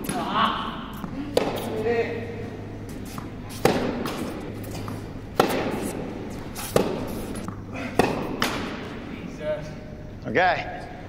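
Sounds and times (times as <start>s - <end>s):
tennis ball pops echoing: 1.0s - 1.6s, 4.8s - 5.8s, 6.8s - 8.8s.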